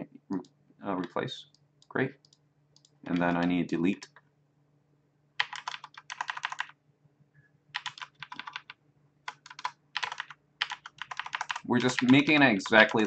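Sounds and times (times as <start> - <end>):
faint low hum: 0.0 - 13.0
keyboard keys tapping: 2.8 - 4.2, 5.4 - 6.7, 7.8 - 8.7, 9.3 - 13.0.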